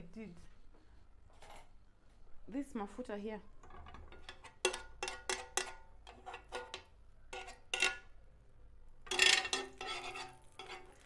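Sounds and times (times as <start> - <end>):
metal spoon tapping grill pan: 4.1 - 8.1, 9.1 - 11.0.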